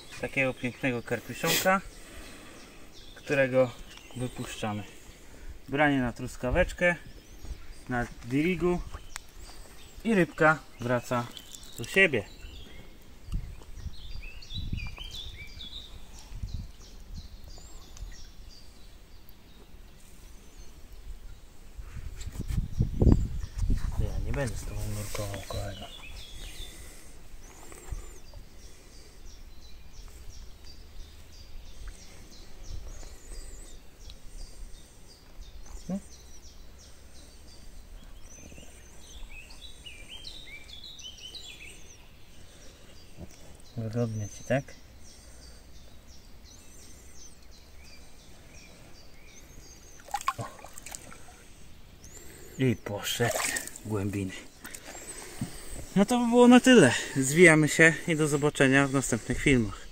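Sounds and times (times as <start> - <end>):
small birds chirping: 0.0 - 59.9
low rumble of wind: 12.3 - 19.0, 20.5 - 28.8.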